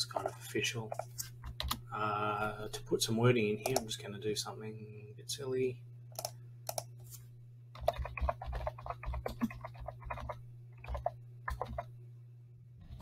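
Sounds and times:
steady low hum: 0.0 - 13.0
computer keyboard typing: 0.1 - 1.8, 3.6 - 3.9, 6.2 - 6.9, 7.8 - 11.9.

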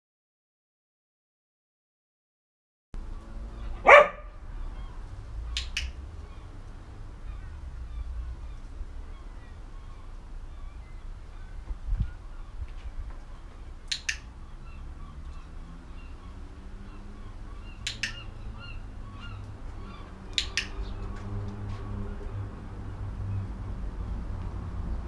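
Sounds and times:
clicker double clicks: 13.9 - 14.3, 17.8 - 18.2.

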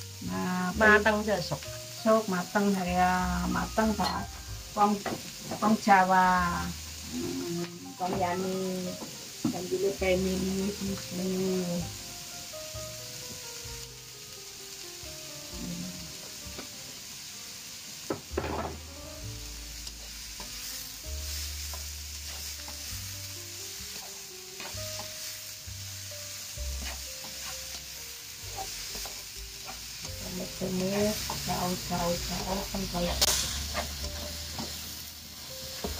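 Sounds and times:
vegetables sizzling in hot oil: 0.0 - 35.9
loud knock on pan: 18.1 - 18.8
spatula scraping and tapping pan: 23.9 - 25.2, 26.7 - 27.9, 28.5 - 34.8.

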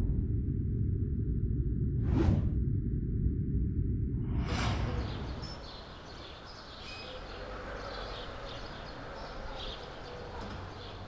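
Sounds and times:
city traffic rumble: 4.8 - 11.0
small birds chirping: 4.9 - 11.0.

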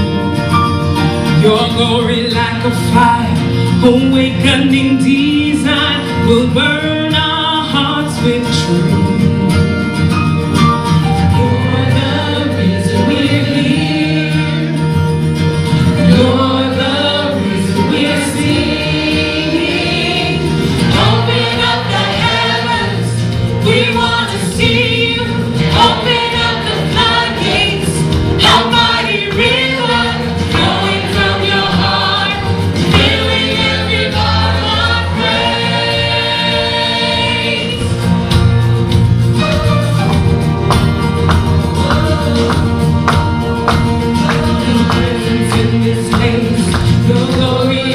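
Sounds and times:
instrumental backing: 0.0 - 47.9
mixed voices singing worship song: 11.2 - 38.6, 41.7 - 47.9.

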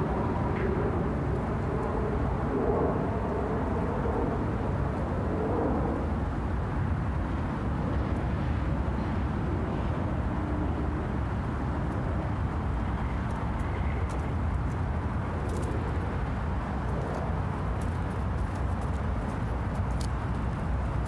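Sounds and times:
distant road traffic rumble: 0.0 - 21.0
faint light ticks: 17.8 - 20.2.

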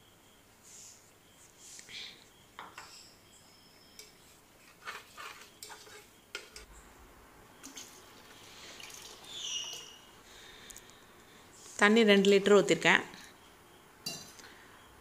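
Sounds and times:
spoon scraping and clinking pot: 3.8 - 6.7, 14.0 - 14.4
water pouring into pot: 7.6 - 10.0.

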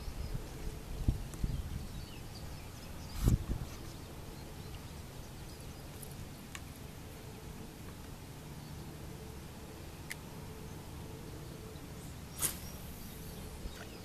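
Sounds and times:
wind buffeting microphone: 0.0 - 4.4.

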